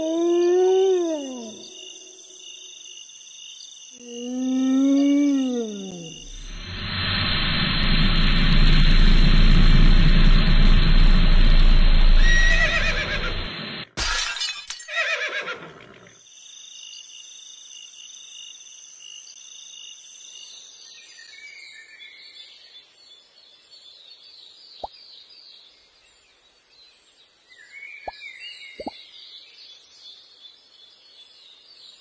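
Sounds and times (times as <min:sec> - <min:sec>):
loud rushing rumble: 0:06.3 - 0:13.7
cartoon horse whinny: 0:12.2 - 0:13.3, 0:14.9 - 0:16.1.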